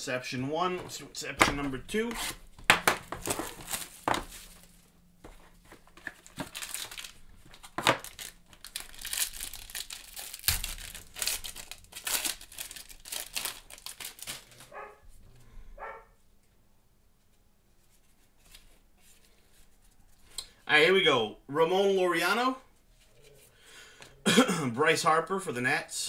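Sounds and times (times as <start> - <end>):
foil wrapper tearing and crinkling: 2.0 - 4.8, 5.8 - 14.7
dog barking: 14.7 - 15.0, 15.8 - 16.2.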